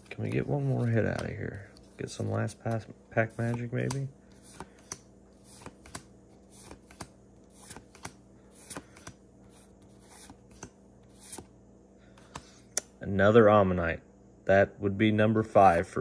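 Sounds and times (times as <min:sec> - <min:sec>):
faint steady hum: 0:00.0 - 0:16.0
trading cards flicking: 0:03.4 - 0:09.2.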